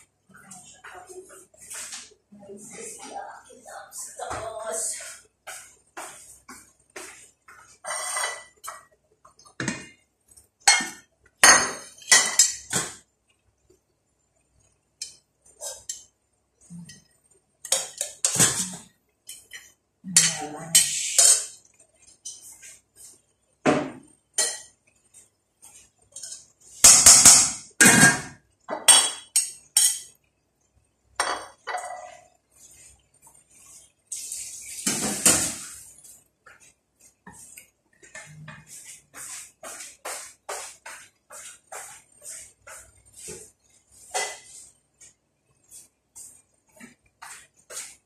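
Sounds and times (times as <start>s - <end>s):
kitchenware clattering and clinking: 5.0s - 10.0s, 10.6s - 13.0s, 15.0s - 16.1s, 16.8s - 24.8s, 25.7s - 30.2s, 31.2s - 32.4s, 34.2s - 44.7s.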